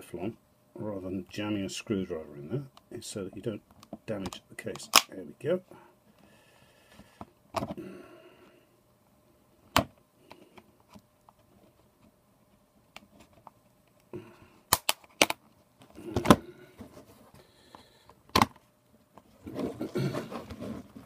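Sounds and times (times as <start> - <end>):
plastic case clips snapping: 14.7 - 15.4.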